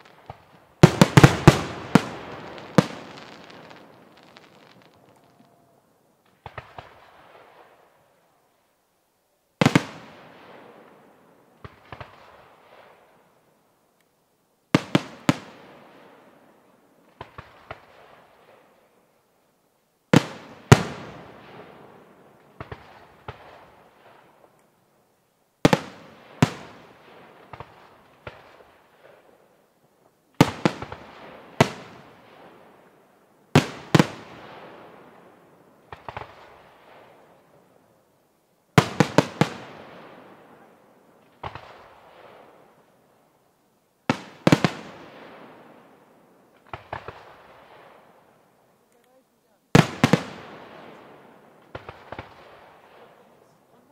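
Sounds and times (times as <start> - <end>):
firework bangs echoing: 0.0 - 5.6, 33.5 - 37.3, 38.8 - 42.7, 49.8 - 53.3
faint firework pops: 6.2 - 7.6, 11.6 - 13.0, 22.4 - 24.7, 35.9 - 37.1, 41.3 - 42.6, 46.6 - 48.0, 51.6 - 53.2.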